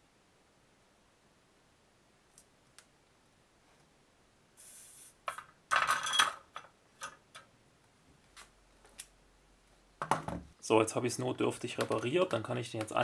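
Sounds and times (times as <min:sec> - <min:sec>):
brief hiss: 0:04.6 - 0:05.3.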